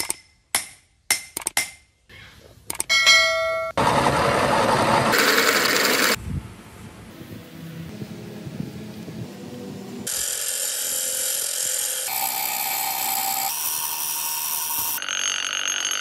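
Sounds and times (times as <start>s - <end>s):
ringing metal clang: 2.9s - 3.8s
drill press boring through steel: 10.1s - 16.0s.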